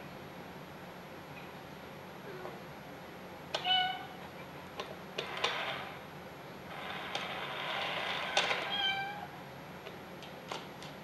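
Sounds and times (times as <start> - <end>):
toy cat meow: 3.6 - 4.2, 8.6 - 9.4.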